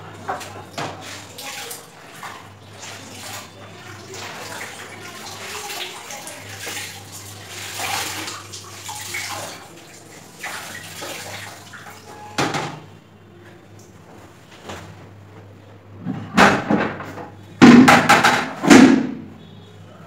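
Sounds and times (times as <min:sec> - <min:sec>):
wet clothes sloshing in bucket: 0:00.0 - 0:12.2.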